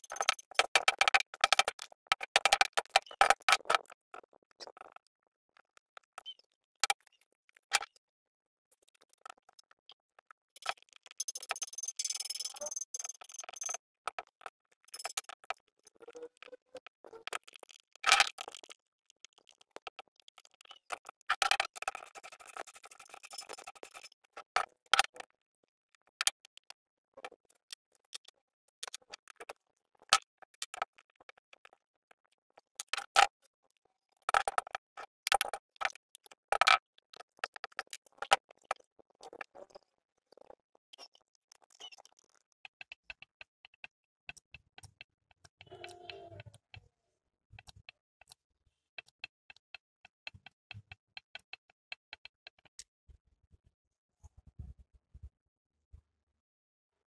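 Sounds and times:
tools clicking on metal: 0.0s - 1.8s, 10.6s - 13.8s.

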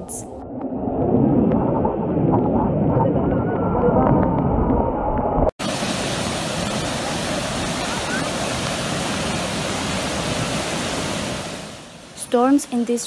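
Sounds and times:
muddy water rushing: 5.6s - 13.0s.

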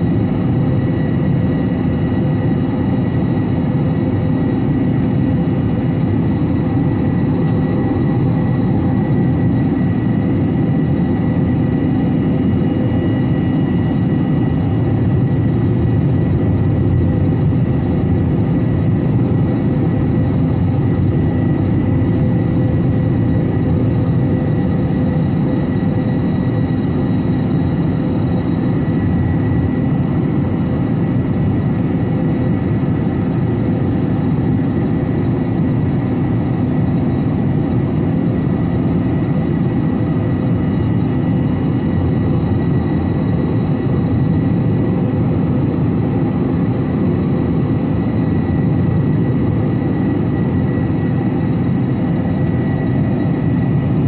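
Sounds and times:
airliner jet engine rumble: 0.0s - 54.0s.

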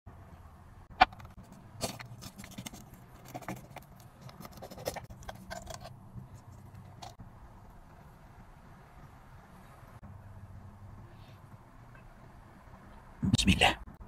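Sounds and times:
knife crunching through baked crust: 1.8s - 5.9s.

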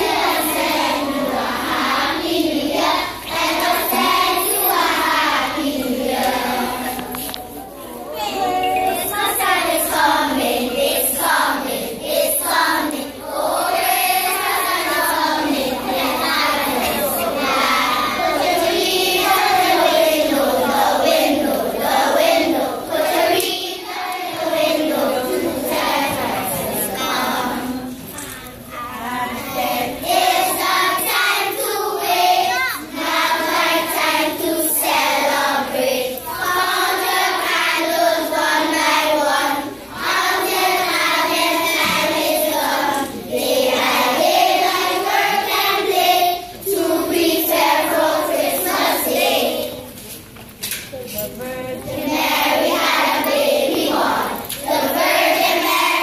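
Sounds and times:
children's choir singing: 0.0s - 56.0s.

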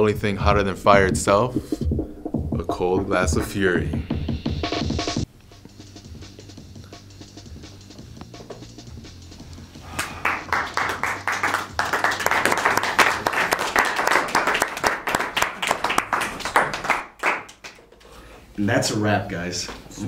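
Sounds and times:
low steady music: 0.0s - 15.3s
people clapping: 9.9s - 18.1s.

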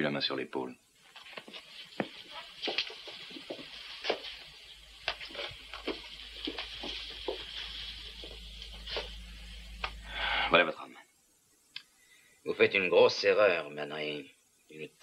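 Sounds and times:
steady hiss: 0.0s - 15.0s
hard-soled footsteps on hard floor: 1.1s - 9.2s.

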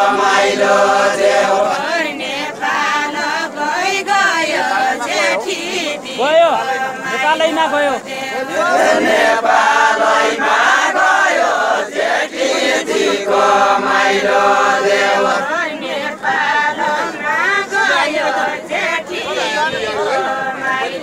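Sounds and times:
men singing folk song together: 0.0s - 21.0s.

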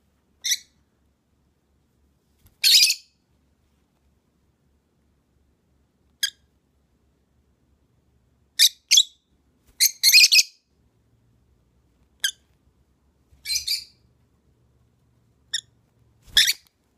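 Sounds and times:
lovebirds chirping: 8.6s - 10.6s, 13.4s - 14.1s.

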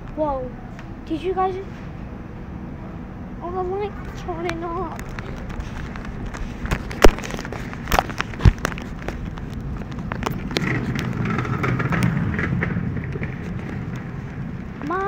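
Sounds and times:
supermarket background noise: 3.4s - 15.0s.

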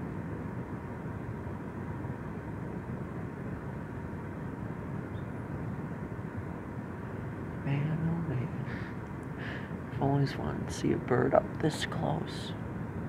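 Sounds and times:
low background rumble: 0.0s - 13.0s.

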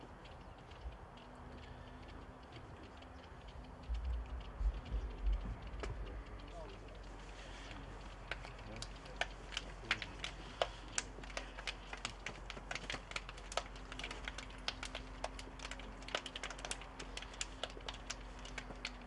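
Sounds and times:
hand slaps and claps: 8.2s - 19.0s.

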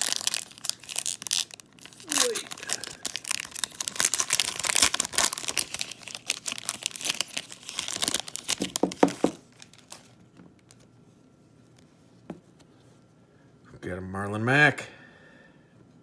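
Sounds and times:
foil wrapper tearing and crinkling: 0.0s - 10.2s.

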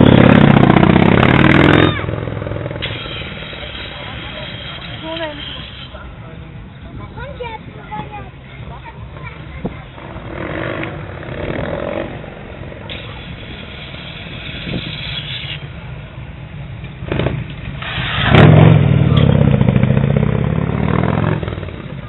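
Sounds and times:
motorcycle passing by: 0.0s - 2.8s, 9.9s - 12.6s, 17.1s - 22.0s.

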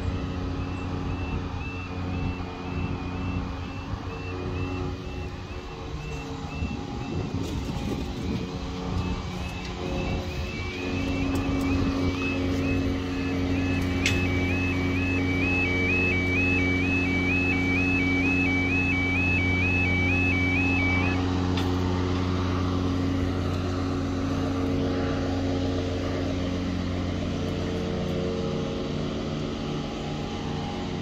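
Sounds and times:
level crossing alarm two-tone yodel: 0.0s - 21.6s
steady low drone: 0.0s - 31.0s.

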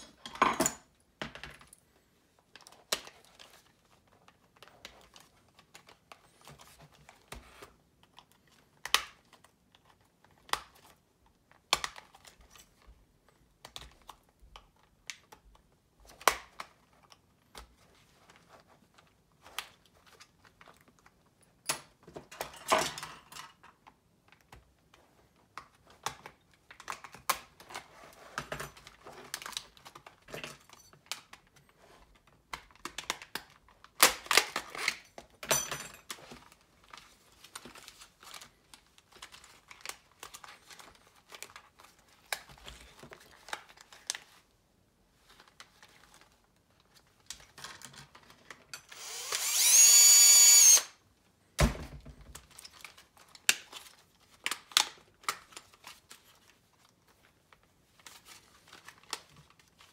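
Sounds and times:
cordless drill whining: 48.9s - 51.0s.

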